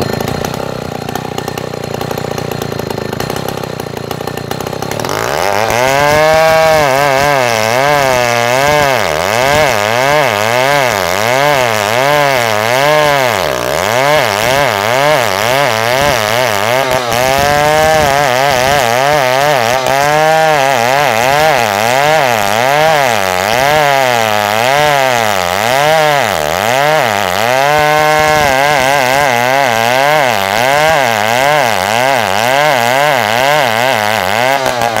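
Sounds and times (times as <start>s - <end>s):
chainsaw cutting log: 0.0s - 35.0s.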